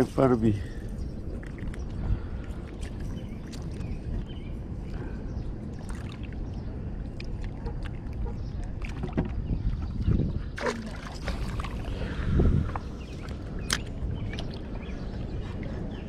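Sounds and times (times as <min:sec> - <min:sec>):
river water: 0:00.0 - 0:16.0
wind on microphone: 0:00.0 - 0:16.0
fish splashing into river: 0:10.6 - 0:11.9.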